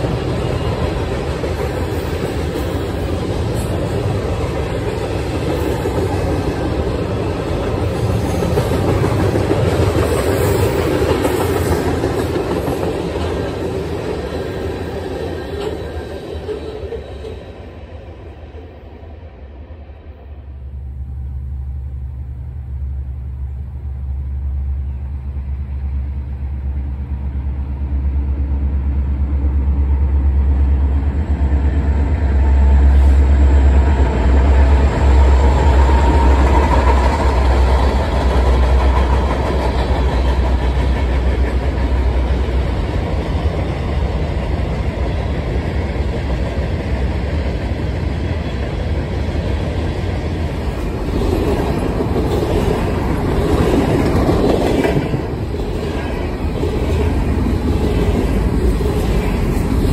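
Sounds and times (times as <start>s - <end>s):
diesel locomotive drone: 0.0s - 59.9s
freight cars rumbling on rails: 0.0s - 59.9s.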